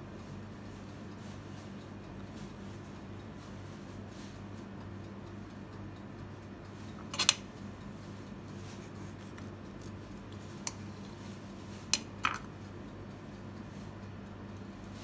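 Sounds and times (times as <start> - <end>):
steady low hum: 0.0 - 15.0
knife clicking against plate: 6.9 - 7.5.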